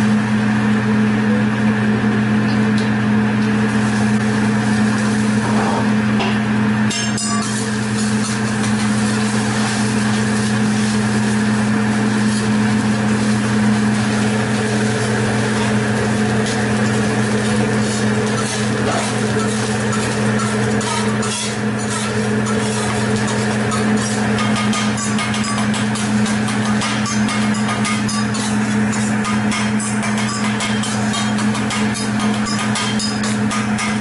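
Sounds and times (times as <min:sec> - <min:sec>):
low mechanical fan hum: 0:00.0 - 0:34.0
metal spatula scraping on griddle: 0:17.8 - 0:24.2.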